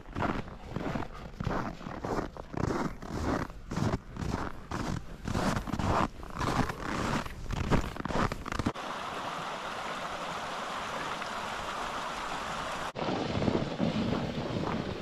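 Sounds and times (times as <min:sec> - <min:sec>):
mountain stream rushing: 0:08.7 - 0:15.0
wind noise on microphone: 0:12.8 - 0:15.0.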